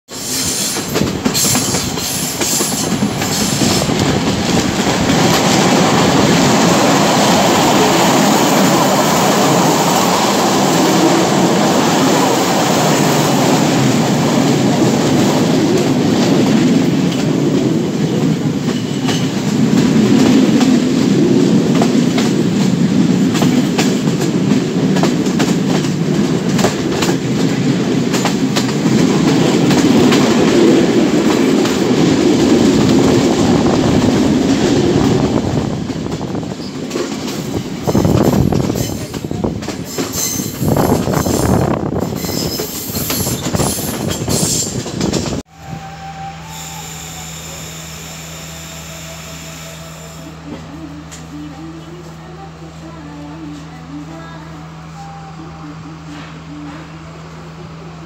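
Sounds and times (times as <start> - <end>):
train wheels rumbling on rails: 0.1 - 54.6.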